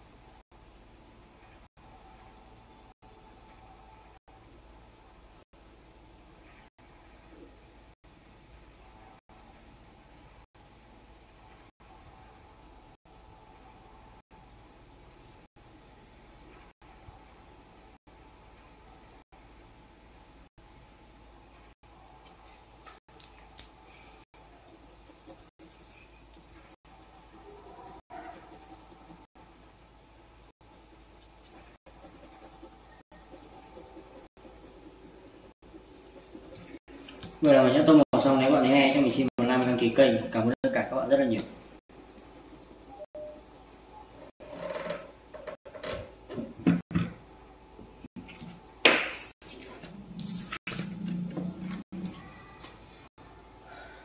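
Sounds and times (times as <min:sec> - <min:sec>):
colouring tool scratching on paper: 0:24.6 - 0:29.7, 0:30.6 - 0:44.6.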